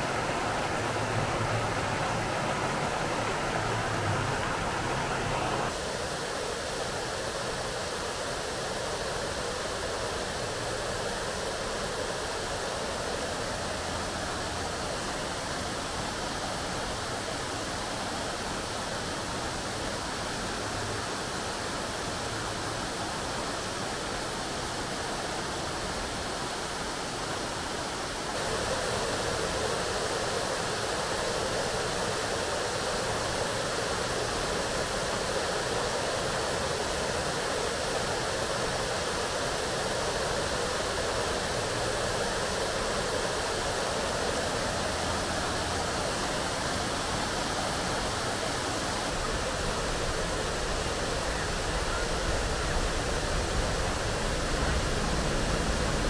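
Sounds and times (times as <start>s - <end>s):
fountain water splashing: 0.0s - 56.0s.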